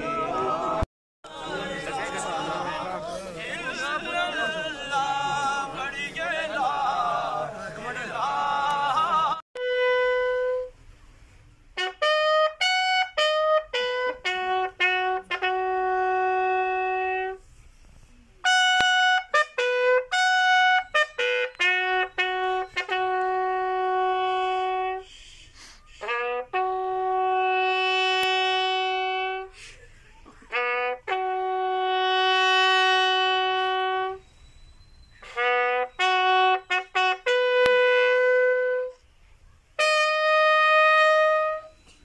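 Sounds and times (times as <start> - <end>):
men chanting together: 0.1 - 9.4
bugle playing slow call: 9.6 - 10.9, 11.8 - 17.5, 18.4 - 25.3, 25.9 - 29.6, 30.5 - 39.1, 39.8 - 42.0.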